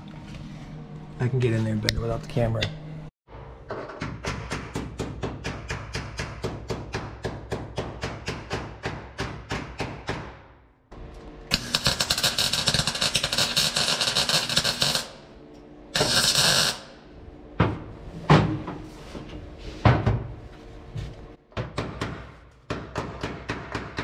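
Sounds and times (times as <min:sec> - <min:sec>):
welding arc crackling: 0:11.5 - 0:15.2, 0:16.0 - 0:17.0.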